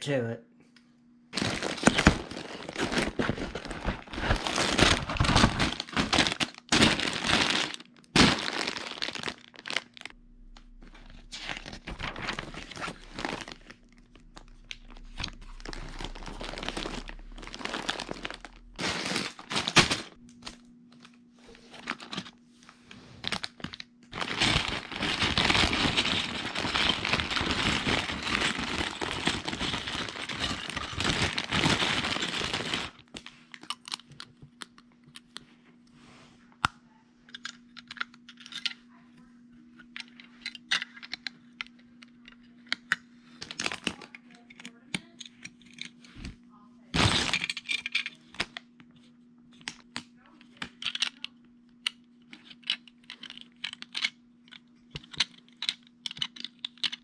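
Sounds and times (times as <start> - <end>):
plastic bags crinkling: 1.3 - 20.6, 21.6 - 22.4, 23.2 - 34.1, 43.4 - 44.7, 47.0 - 48.3
paper pages turning: 10.8 - 20.6.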